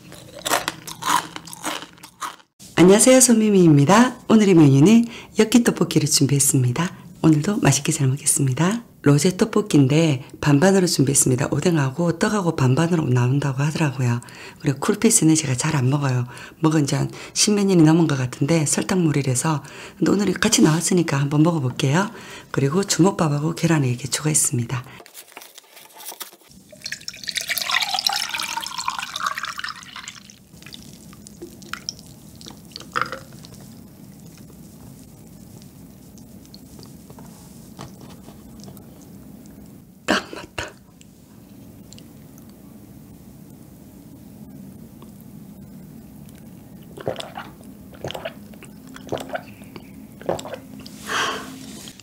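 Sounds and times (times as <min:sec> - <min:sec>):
drink pouring over ice: 0:26.6 - 0:31.9
person gulping drink: 0:26.8 - 0:33.7, 0:46.8 - 0:50.9.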